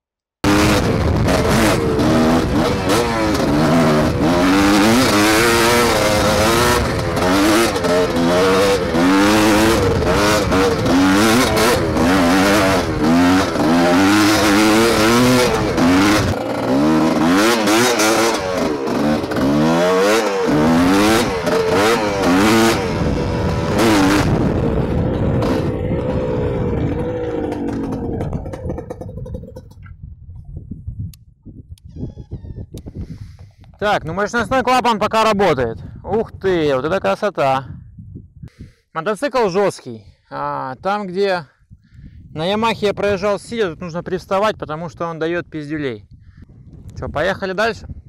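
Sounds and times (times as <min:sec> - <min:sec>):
two-stroke motorcycle engine revving: 0:00.4 - 0:29.8.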